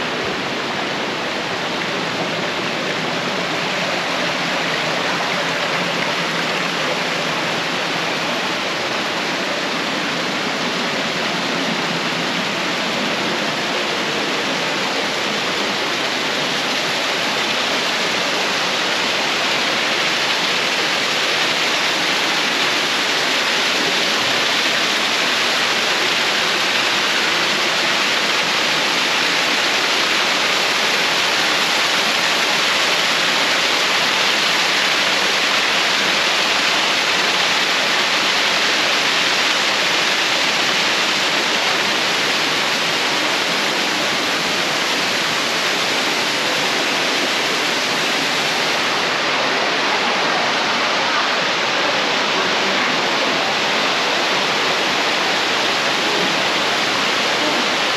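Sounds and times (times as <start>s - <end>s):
waterfall pouring and splashing: 0.0s - 57.9s.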